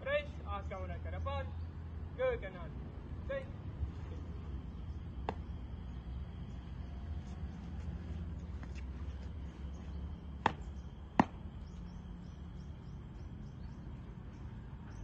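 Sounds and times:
steady low rumble: 0:00.0 - 0:15.0
boot stamps on brick paving: 0:10.4 - 0:11.5.

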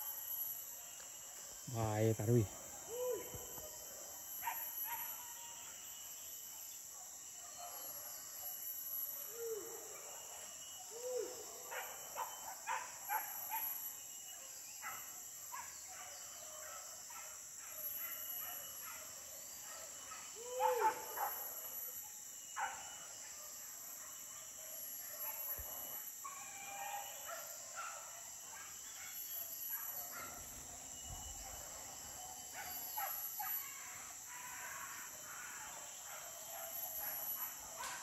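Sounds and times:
high drone of insects: 0:00.0 - 0:38.0
dogs barking: 0:11.6 - 0:13.8, 0:14.8 - 0:21.6, 0:25.2 - 0:30.7, 0:31.4 - 0:33.6, 0:34.4 - 0:38.0.

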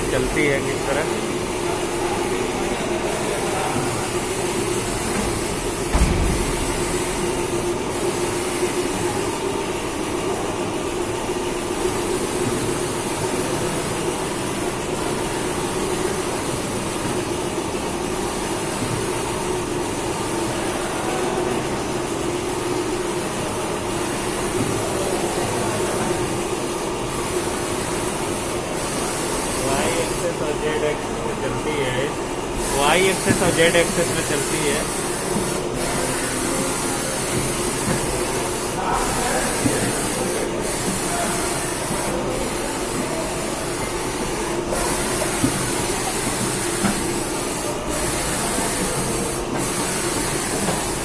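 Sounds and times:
milling machine humming: 0:00.0 - 0:51.0
low thump: 0:05.9 - 0:06.7.

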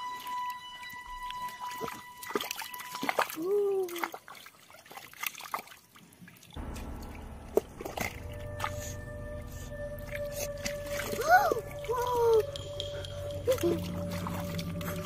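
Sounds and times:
water sloshing and dripping: 0:00.0 - 0:15.0
low steady hum: 0:06.6 - 0:15.0
short gliding tone: 0:06.6 - 0:15.0.

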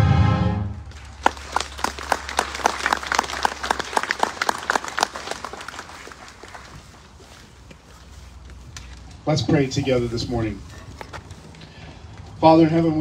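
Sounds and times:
marching band held chord: 0:00.0 - 0:06.6
crowd applauding: 0:00.8 - 0:07.6.

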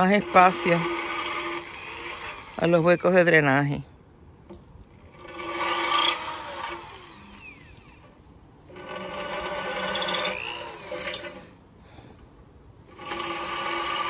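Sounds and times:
cordless drill boring into clay: 0:00.0 - 0:03.5, 0:05.0 - 0:11.6, 0:12.9 - 0:14.0.

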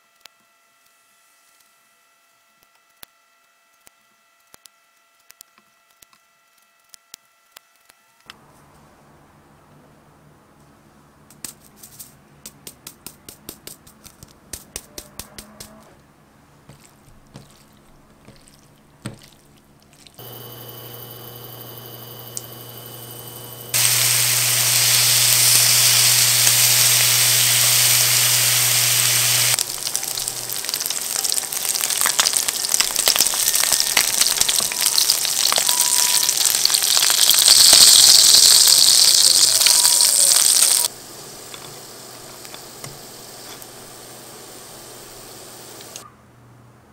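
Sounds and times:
crackling and popping fat: 0:16.8 - 0:40.9
hob electrical hum: 0:18.8 - 0:46.0
chicken skins sizzling in pan: 0:20.2 - 0:46.0.

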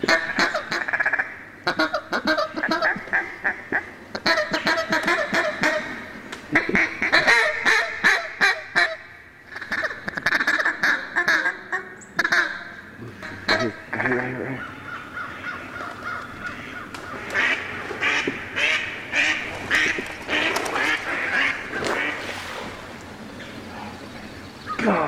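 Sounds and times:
duck call quacking: 0:00.1 - 0:22.3.

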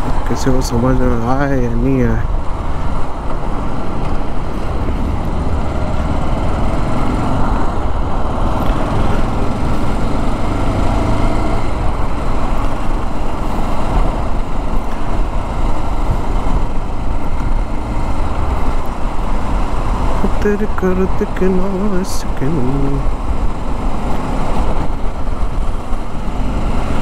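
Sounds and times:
motorcycle engine: 0:01.1 - 0:27.0
wind on microphone: 0:02.2 - 0:20.3.

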